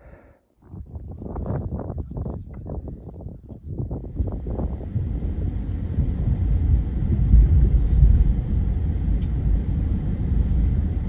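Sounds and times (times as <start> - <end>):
car engine and tyre rumble: 3.7 - 11.0.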